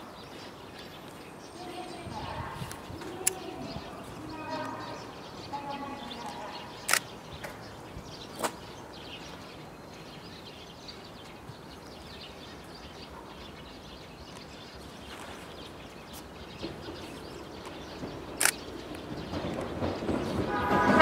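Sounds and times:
sharp clicks: 6.8 - 7.1, 18.4 - 19.7
electric train approaching: 16.6 - 21.0.

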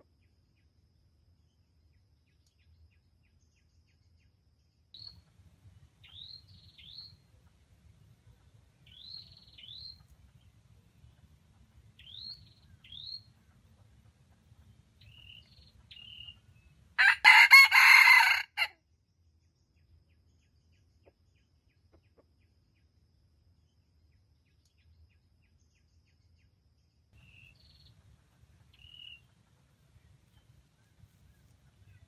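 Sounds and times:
small birds chirping: 5.0 - 17.4, 27.2 - 32.0
rooster crowing: 17.0 - 18.7.

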